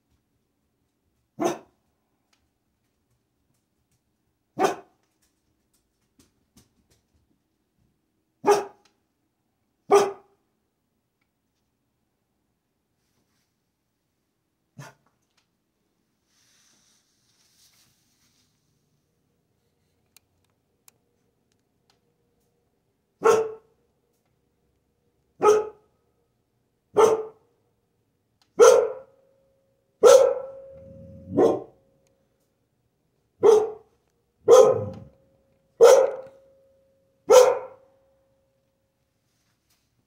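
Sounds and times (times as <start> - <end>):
dog barking: 1.4 - 1.8, 4.6 - 5.0, 8.4 - 8.8, 9.9 - 10.4, 14.8 - 15.0, 23.2 - 23.7, 25.4 - 25.9, 26.9 - 27.5, 28.6 - 29.2, 30.0 - 31.8, 33.4 - 35.2, 35.8 - 36.4, 37.3 - 37.9
low rumbling: 30.5 - 31.8, 34.5 - 35.2.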